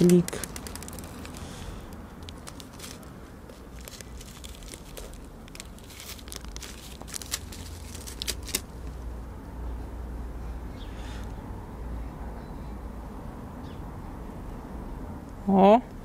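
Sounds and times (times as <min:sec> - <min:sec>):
plastic packet crinkling: 0:00.0 - 0:08.9.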